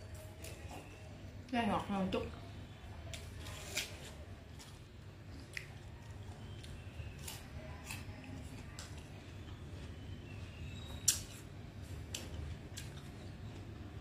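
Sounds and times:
apple crunching: 3.0s - 14.0s.

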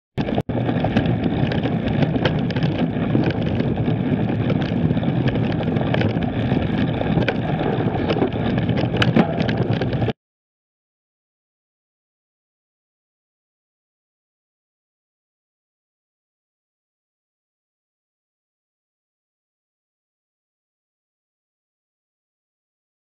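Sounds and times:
tyre noise on dirt: 0.2s - 10.1s
bike rattling over bumps: 0.2s - 10.2s
wind buffeting microphone: 0.2s - 10.2s.

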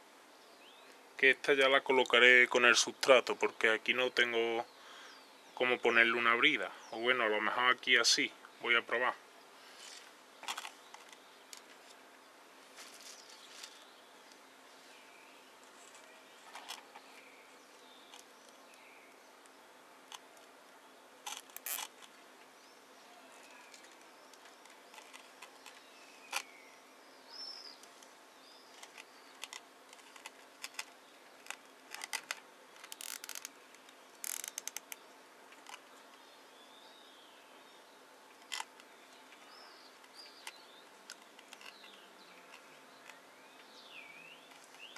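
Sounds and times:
handling rustles: 9.7s - 18.8s, 23.3s - 26.6s
faint bird chirps: 22.6s - 29.5s
cable ties ratcheting clicks: 28.8s - 33.6s, 34.2s - 35.0s.

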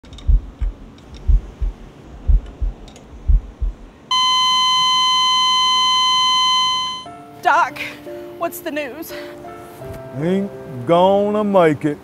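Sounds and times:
heartbeat thumps: 0.0s - 4.1s
heart monitor flatline beep: 3.3s - 7.1s.

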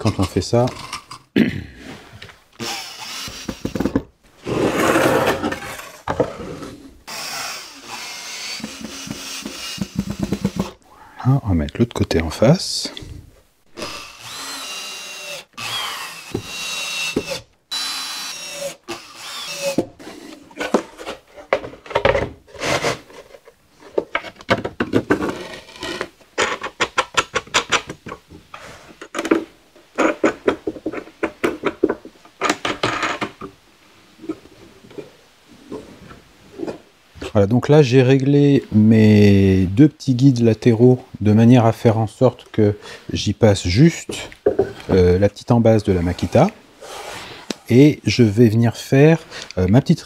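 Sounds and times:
cordless drill driving screws: 2.6s - 3.9s, 7.1s - 10.8s, 13.8s - 19.9s.

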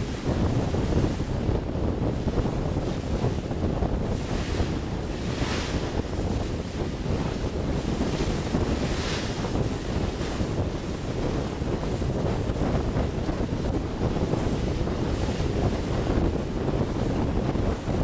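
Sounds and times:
wind buffeting microphone: 0.0s - 18.0s
rushing water: 2.0s - 17.0s.

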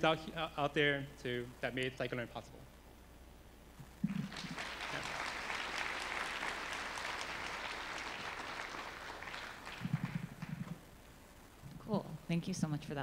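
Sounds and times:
audience applauding: 4.0s - 10.8s.

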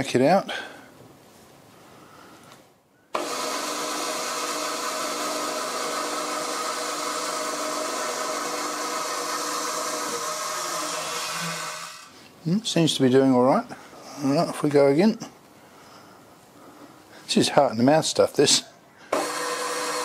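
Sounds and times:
milling machine spindle running: 3.2s - 12.1s, 19.1s - 20.0s.

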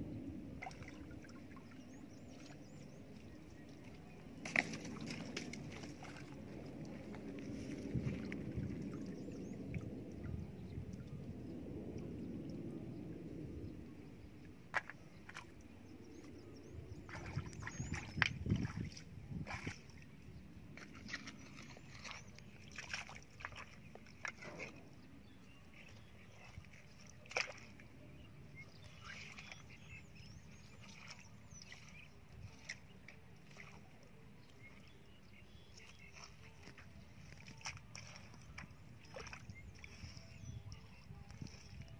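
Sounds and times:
hands sloshing in muddy water: 0.5s - 11.0s, 14.7s - 41.9s
wet mud squelches: 0.6s - 11.0s, 14.7s - 41.9s.

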